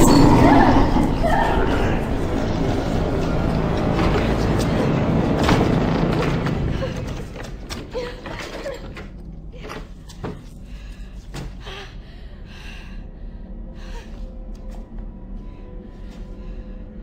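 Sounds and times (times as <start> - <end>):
low music drone: 0.0 - 17.0
creaks clicks and knocks: 3.6 - 10.5.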